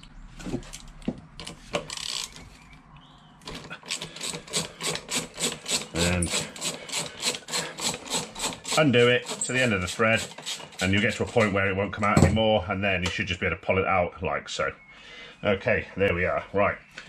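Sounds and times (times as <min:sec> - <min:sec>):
hand ratchet clicking: 0:01.4 - 0:02.4, 0:03.5 - 0:11.5.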